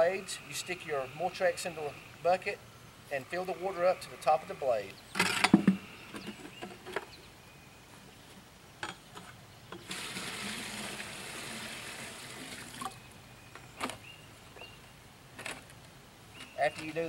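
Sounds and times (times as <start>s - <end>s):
plastic buckets knocking: 5.3s - 6.5s
water pouring into bucket: 9.8s - 13.0s.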